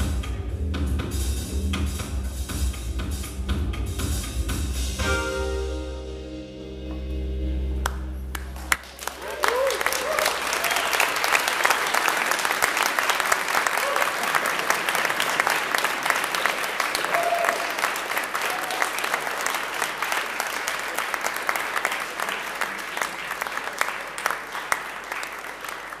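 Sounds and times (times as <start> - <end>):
audience clapping: 7.8 - 26.0
short calls from crowd: 16.8 - 19.1.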